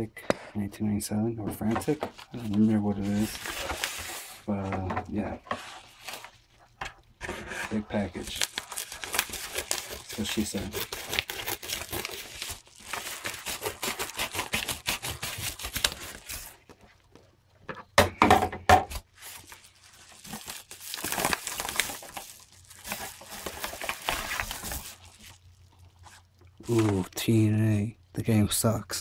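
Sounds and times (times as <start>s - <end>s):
package wrapping tearing: 7.7s - 16.6s, 18.9s - 27.0s.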